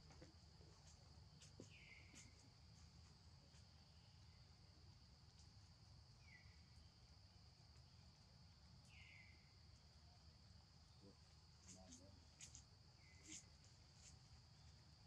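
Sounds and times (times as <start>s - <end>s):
short faint chirping calls: 1.4s - 2.6s, 6.1s - 7.0s, 8.8s - 9.6s, 10.9s - 14.8s.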